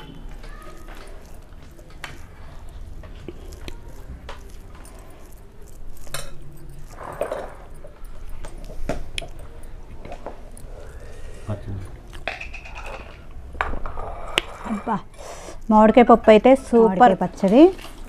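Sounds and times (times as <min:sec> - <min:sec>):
fingers squishing food: 0:00.0 - 0:12.3.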